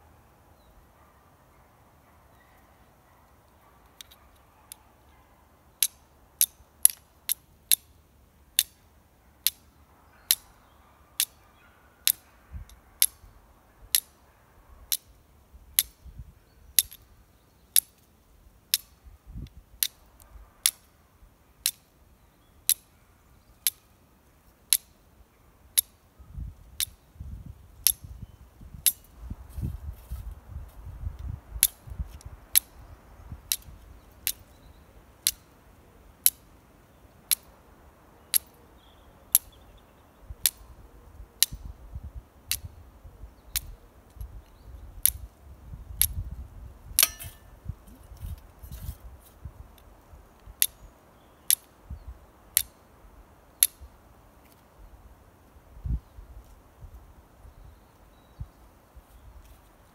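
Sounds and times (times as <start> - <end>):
flint and steel clicks: 3.8 - 4.8, 5.8 - 7.9, 8.6 - 8.8, 9.4 - 9.7, 10.3 - 10.5, 11.2 - 11.4, 12.0 - 13.2, 13.9 - 14.2, 14.9 - 15.2, 15.8 - 16.0, 16.8 - 17.1, 17.7 - 18.1, 18.7 - 20.9, 21.6 - 21.9, 22.7 - 22.9, 23.6 - 23.9, 24.7 - 25.0, 25.8 - 26.0, 26.7 - 27.0, 27.8 - 28.1, 28.8 - 29.1, 31.6 - 32.8, 33.5 - 34.6, 35.2 - 35.5, 36.2 - 36.5, 37.3 - 37.5, 38.3 - 38.6, 40.4 - 40.6, 42.5 - 42.7, 43.5 - 45.3, 46.0 - 46.2, 47.0 - 49.0, 49.8 - 50.8, 51.5 - 51.8, 52.5 - 52.8, 53.6 - 53.8.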